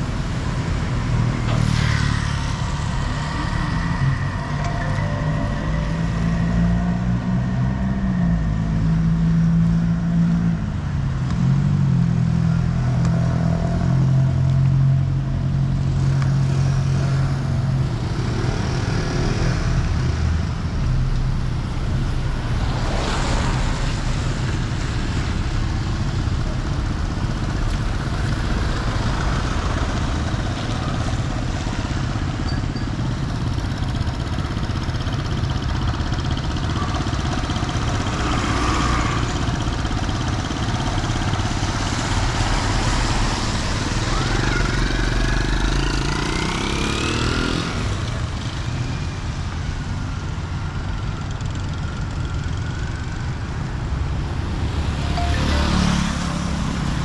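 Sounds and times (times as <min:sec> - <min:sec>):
low engine drone: 0:00.0 - 0:11.6, 0:53.9 - 0:57.0
traffic engines rumbling: 0:00.0 - 0:57.0.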